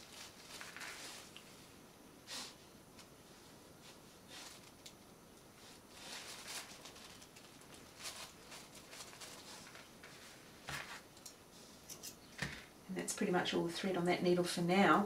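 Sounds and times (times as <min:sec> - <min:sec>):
paper and fabric rustling: 0:00.0 - 0:01.4, 0:05.6 - 0:11.1.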